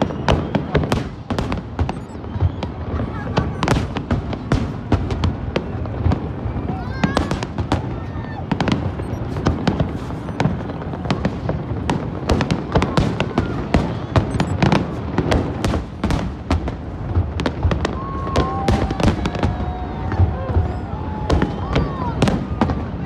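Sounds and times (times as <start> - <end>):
steady whistle: 0.0 - 1.0, 1.9 - 2.8
fireworks bangs and crackles: 0.0 - 23.0.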